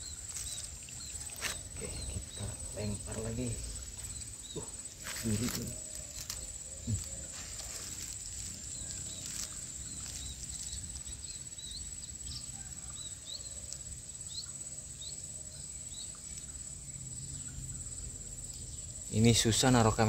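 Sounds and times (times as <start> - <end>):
high-pitched insect trilling: 0.0 - 20.0.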